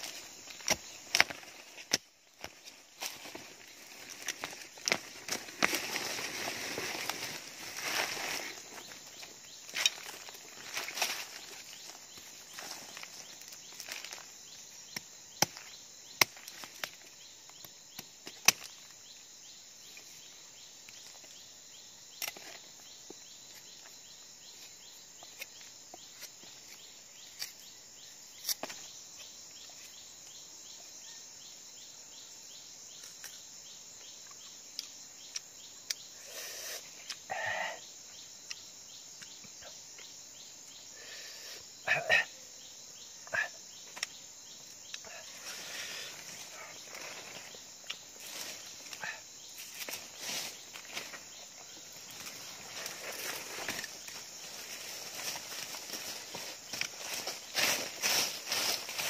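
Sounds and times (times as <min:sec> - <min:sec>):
rustles: 0:00.0 - 0:14.7, 0:43.8 - 0:59.0
insects chirping: 0:00.0 - 0:59.0.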